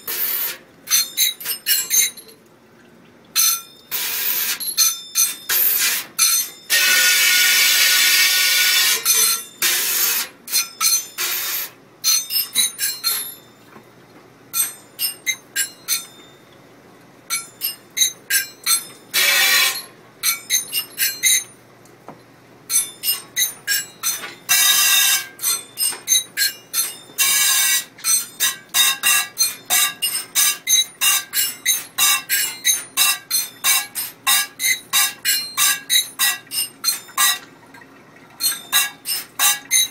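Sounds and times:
metal cups clanking on sink: 22.7s - 39.9s.

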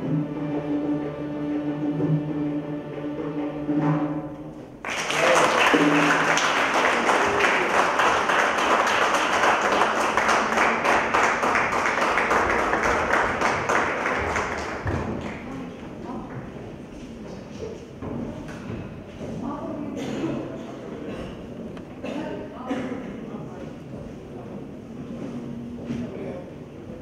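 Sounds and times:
audience applause: 4.8s - 15.6s.

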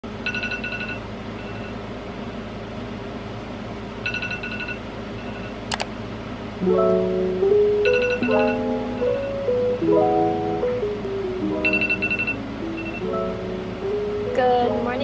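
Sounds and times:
steady low hum: 0.0s - 15.0s
sharp click: 5.7s - 5.9s
alarm beeping: 7.8s - 9.4s, 11.6s - 13.4s.

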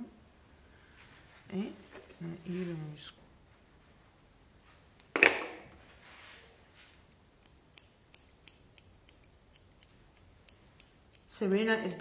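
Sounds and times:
shears snipping hair: 6.8s - 12.0s.

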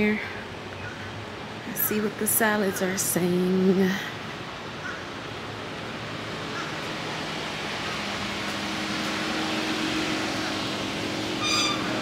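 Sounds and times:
mechanical hum with low drone: 0.0s - 12.0s
outdoor rushing noise: 4.0s - 12.0s
high ringing tone: 11.4s - 12.0s.

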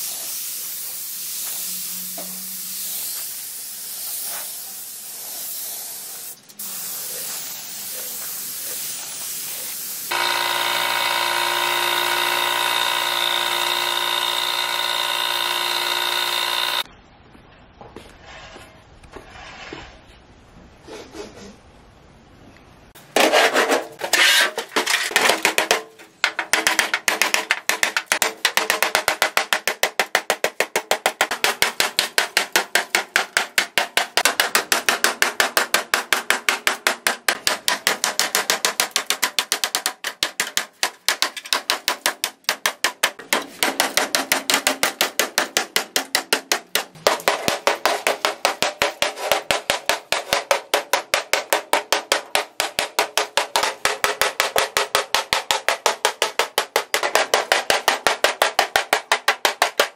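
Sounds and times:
hammer striking metal panel: 25.1s - 59.9s.

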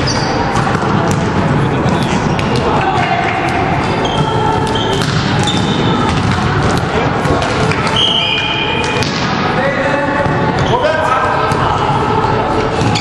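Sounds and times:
sneakers squeaking on court: 0.0s - 9.2s, 12.8s - 13.0s
volleyballs struck and bouncing: 0.0s - 10.8s, 12.6s - 13.0s
players' voices: 0.0s - 13.0s.

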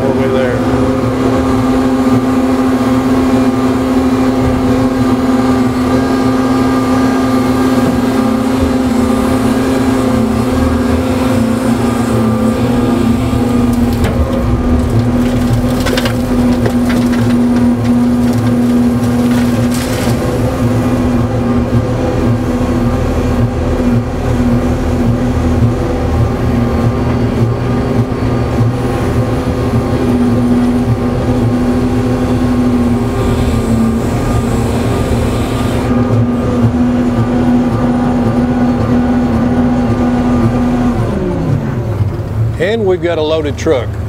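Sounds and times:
excavator engine and hydraulics: 0.0s - 44.0s.

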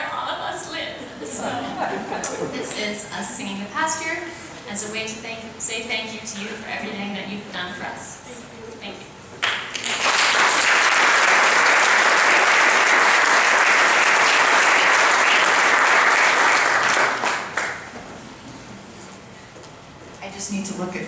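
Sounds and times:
audience applauding: 9.4s - 17.9s.

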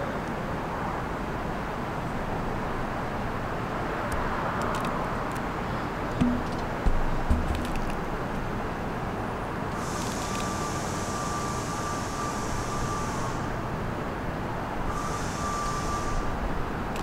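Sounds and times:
distant subway train rumble: 0.0s - 17.0s
thin high tone with hiss: 14.9s - 16.3s.

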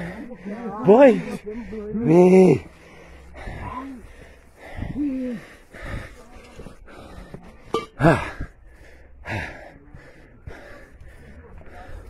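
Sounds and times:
man breathing hard and gasping: 2.5s - 12.0s.

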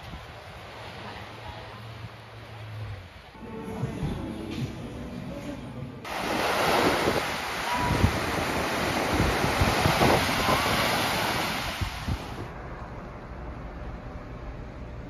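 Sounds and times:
small waves breaking on beach: 6.1s - 12.5s
wind buffeting microphone: 6.1s - 12.5s.

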